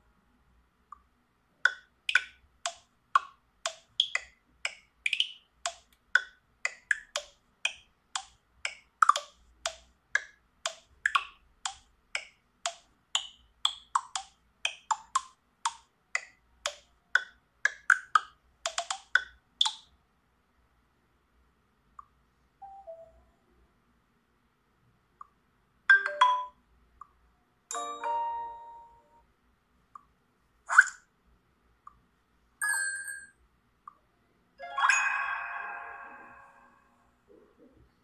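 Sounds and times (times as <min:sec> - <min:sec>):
phone ringtone tune: 0:32.6 - 0:33.3, 0:34.6 - 0:36.7.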